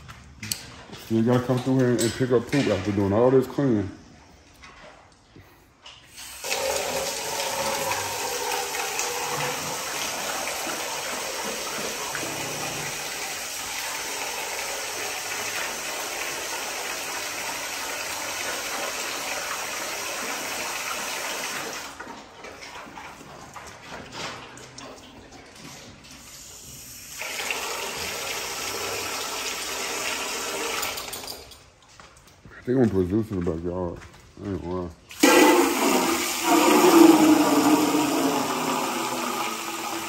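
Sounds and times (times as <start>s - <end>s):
water running into a container: 6.1s - 31.2s, 35.1s - 40.0s.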